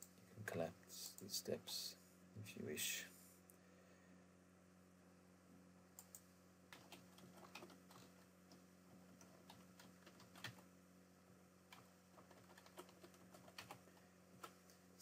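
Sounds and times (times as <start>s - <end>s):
low steady hum: 0.0s - 15.0s
mouse clicks: 6.0s - 6.2s
keyboard typing: 6.0s - 8.2s, 9.1s - 10.6s, 11.7s - 14.6s.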